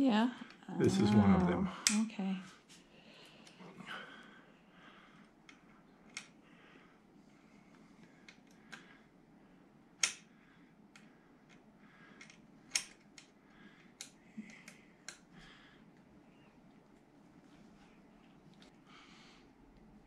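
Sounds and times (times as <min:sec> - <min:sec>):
small parts clicking and tapping: 0:10.9 - 0:15.3.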